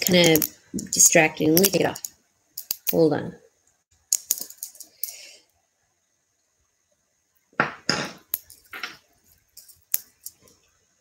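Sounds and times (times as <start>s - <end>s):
beads and jewelry clinking: 0.0s - 3.1s, 4.1s - 5.4s, 8.2s - 10.6s.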